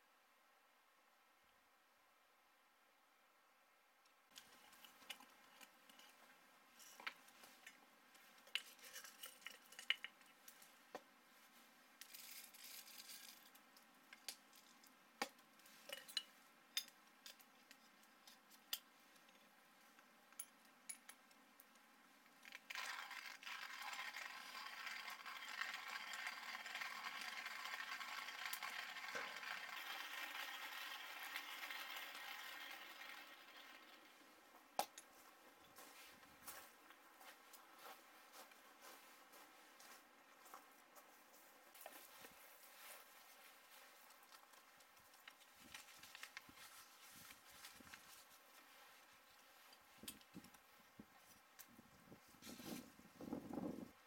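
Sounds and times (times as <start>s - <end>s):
coffee beans clicking: 8.5s - 10.3s, 22.4s - 34.2s
hand grinder grinding beans: 12.0s - 13.6s, 22.3s - 35.0s.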